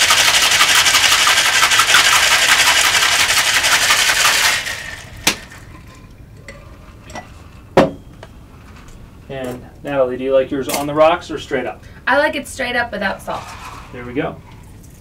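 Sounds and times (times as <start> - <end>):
ice rattling in cocktail shaker: 0.0 - 7.1.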